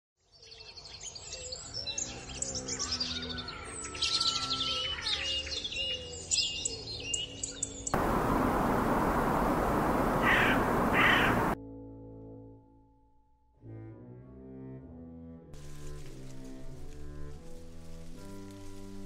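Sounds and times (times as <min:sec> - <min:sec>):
forest birds chirping: 0:00.4 - 0:11.6
waves breaking: 0:08.0 - 0:11.6.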